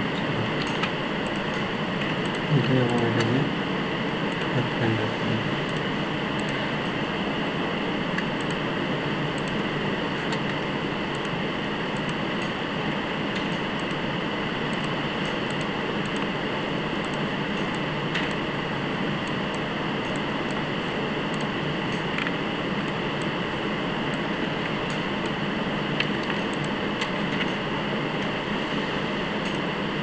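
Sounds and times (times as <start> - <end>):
room noise hiss and hum: 0.0 - 30.0
computer mouse clicks: 0.6 - 3.4, 5.7 - 6.6, 8.1 - 8.6, 9.4 - 9.6, 10.2 - 11.3, 12.0 - 12.6, 13.3 - 14.0, 14.7 - 16.3, 21.3 - 23.4, 26.0 - 27.6, 29.4 - 29.6.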